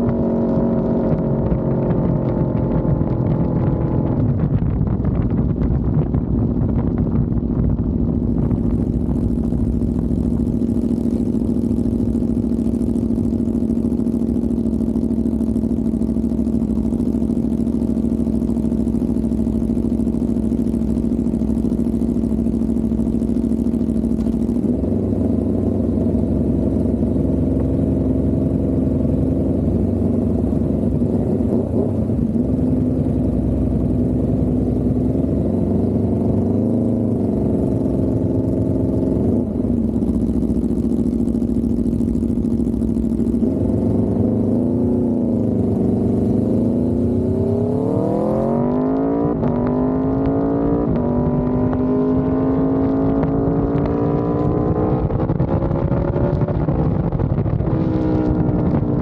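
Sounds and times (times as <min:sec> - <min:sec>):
wind noise: 0:00.0 - 0:10.6, 0:46.9 - 0:59.0
motorcycle engine revving and idling: 0:00.0 - 0:59.0.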